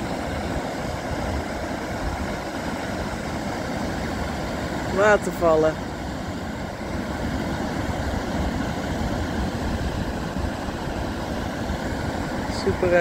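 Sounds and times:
water rushing over rock ledges: 0:00.0 - 0:13.0.

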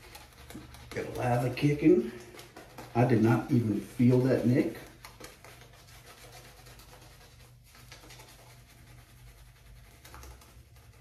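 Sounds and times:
shaving brush rubbing on skin: 0:00.0 - 0:11.0.

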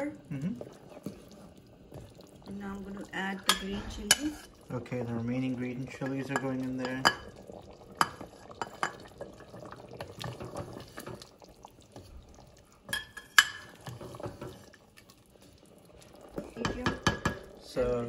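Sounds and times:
spoon knocking against a pot: 0:16.6 - 0:17.5.

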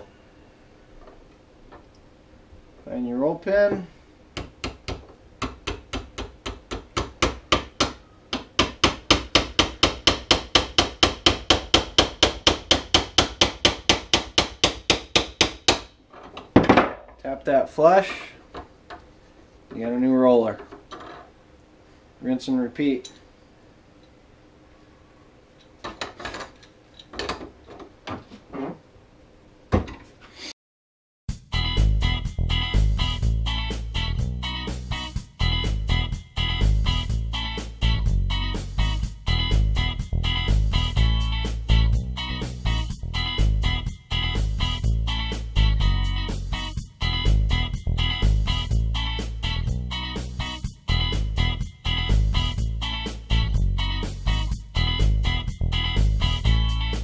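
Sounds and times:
upbeat guitar music: 0:31.3 - 0:57.0.

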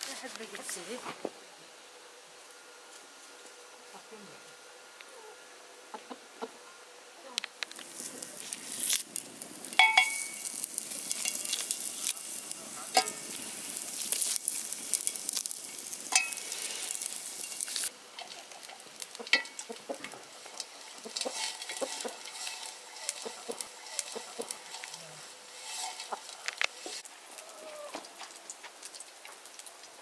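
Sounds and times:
fat sizzling in a pan: 0:04.5 - 0:30.0
knife scraping in a pan: 0:09.8 - 0:19.6, 0:20.5 - 0:27.0.

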